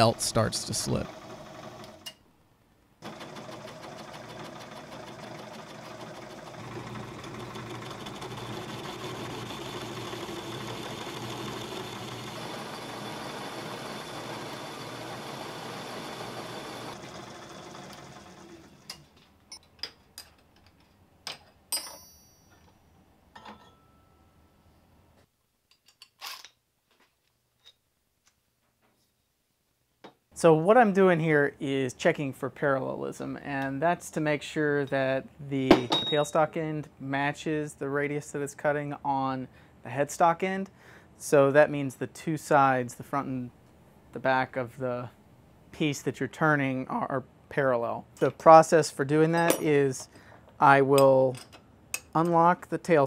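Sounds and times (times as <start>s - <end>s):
metal lathe running: 1.0s - 2.0s, 3.0s - 18.9s.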